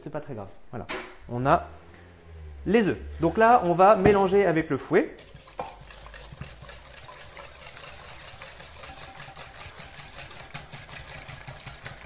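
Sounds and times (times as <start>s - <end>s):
whisk beating cake mixture: 5.2s - 12.0s.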